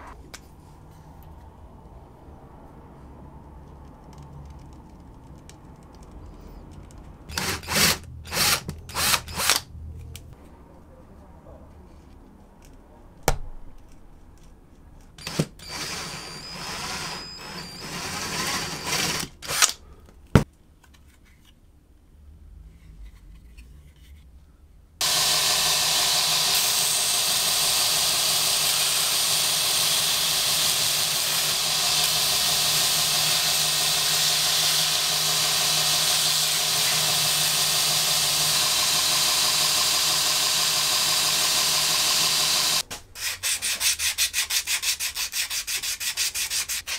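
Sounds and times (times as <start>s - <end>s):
light clicks and handling: 3.4s - 7.3s, 11.7s - 15.2s
belt grinder grinding: 7.3s - 9.6s, 15.2s - 19.7s, 25.0s - 43.5s.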